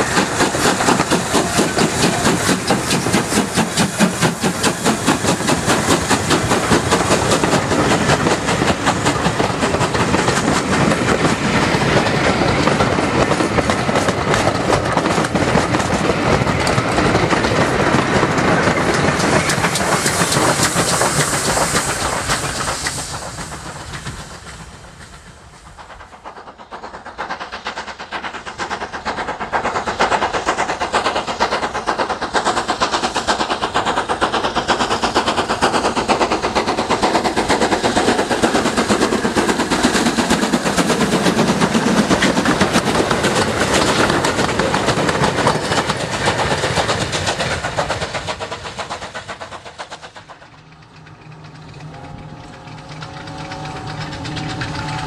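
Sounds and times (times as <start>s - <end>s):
steam locomotive exhaust beats: 0.0s - 55.0s
train rumble: 0.0s - 55.0s.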